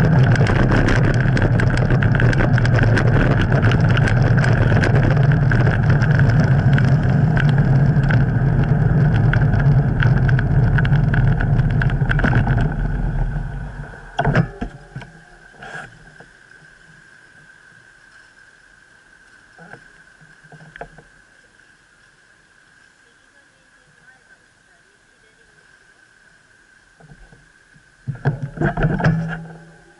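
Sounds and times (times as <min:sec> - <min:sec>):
wind buffeting microphone: 0:00.0 - 0:15.6
traffic: 0:00.0 - 0:26.0
bicycle road rumble: 0:00.0 - 0:29.9.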